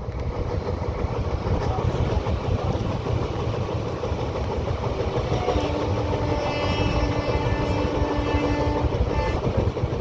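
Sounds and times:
train rumbling over track: 0:00.0 - 0:10.0
droning tone: 0:04.4 - 0:09.5.

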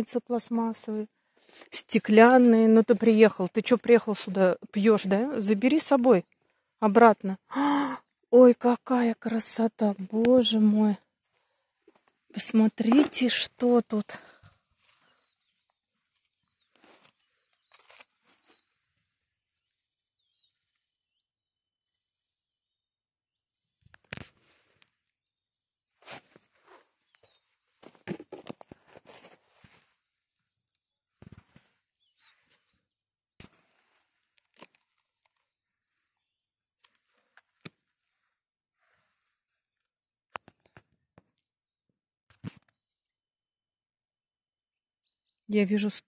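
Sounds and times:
dry pine needles rustling: 0:12.8 - 0:19.0
faint high bird chirps: 0:15.0 - 0:24.0, 0:30.0 - 0:34.4, 0:44.9 - 0:46.0.

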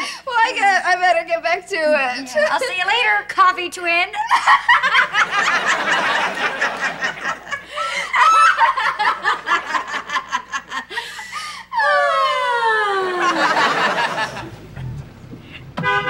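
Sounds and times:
women laughing: 0:04.2 - 0:14.9.

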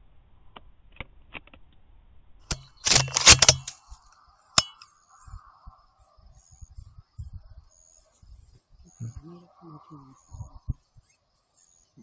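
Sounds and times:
rifle shot: 0:02.5 - 0:03.8
sharp click: 0:02.5 - 0:04.9.

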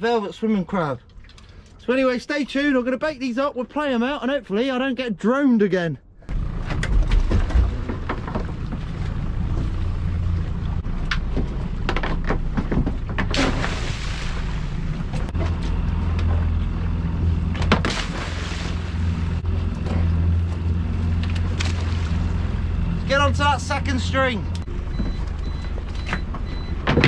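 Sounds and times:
outboard engine running: 0:06.3 - 0:25.8
splashes into water: 0:13.3 - 0:14.9, 0:17.7 - 0:19.4, 0:21.6 - 0:22.4.

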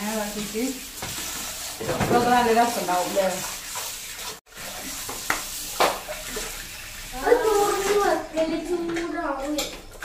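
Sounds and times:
hands rinsing food in bowl: 0:00.0 - 0:10.0
tap running into metal sink: 0:05.0 - 0:06.5.

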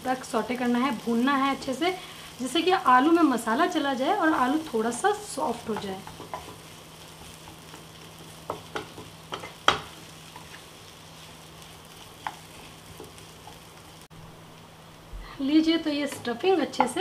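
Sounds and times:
faint sizzle: 0:00.0 - 0:17.0
spatula knocking on pan: 0:08.4 - 0:09.9, 0:16.1 - 0:17.0.

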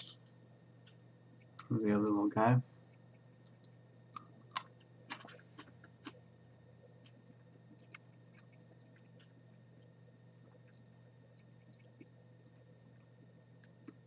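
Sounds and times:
steady low hum: 0:00.0 - 0:14.0
chewing crunches: 0:03.1 - 0:06.3, 0:06.9 - 0:14.0.

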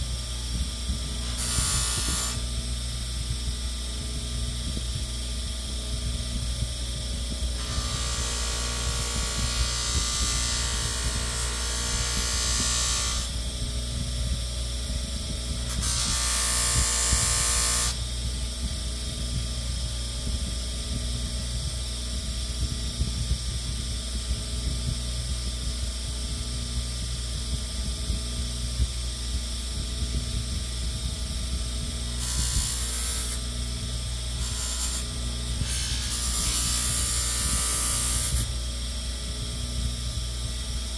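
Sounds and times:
power tool motor running: 0:01.2 - 0:02.5, 0:07.6 - 0:13.4, 0:15.7 - 0:18.0, 0:32.1 - 0:33.6, 0:34.3 - 0:38.5.

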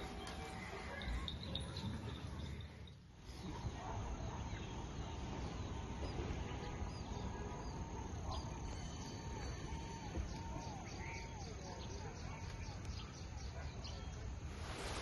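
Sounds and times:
bird calls and chirps: 0:05.4 - 0:15.0.

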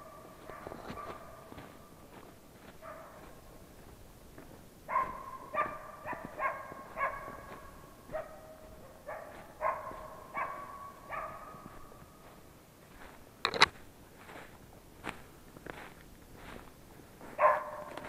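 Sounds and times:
dog barking: 0:00.0 - 0:01.8, 0:02.6 - 0:03.4, 0:04.9 - 0:12.1, 0:17.4 - 0:18.0.

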